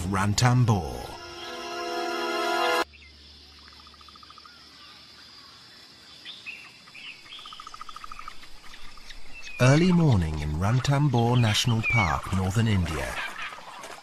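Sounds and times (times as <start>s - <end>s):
held music chord: 0.0s - 2.8s
steady high insect hum: 2.8s - 10.4s
birds chirping and calling: 6.2s - 13.8s.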